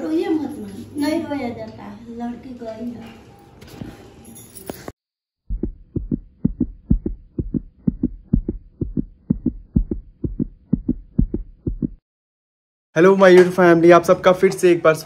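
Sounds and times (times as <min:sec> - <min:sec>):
heartbeat low thumps: 0:05.4 - 0:12.0.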